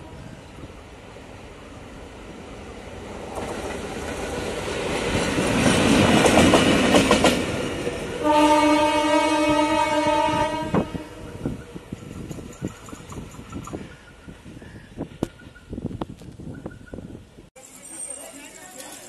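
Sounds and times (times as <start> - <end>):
train horn: 0.0 - 0.5, 8.2 - 11.4
diesel locomotive engine: 0.0 - 19.0
wheels clicking over rail joints: 11.4 - 14.4.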